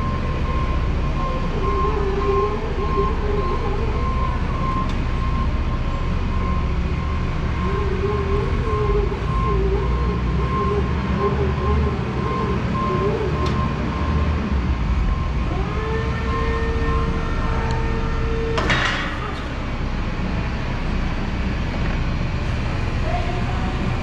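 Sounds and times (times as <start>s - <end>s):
electric forklift motor whine: 0.0s - 24.0s
hydraulic pump whine: 0.0s - 24.0s
forklift mast clunk: 18.6s - 19.5s.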